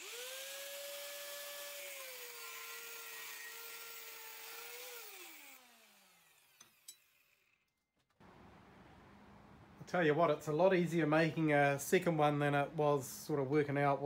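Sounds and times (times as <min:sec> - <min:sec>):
angle grinder cutting steel: 0:00.0 - 0:07.6.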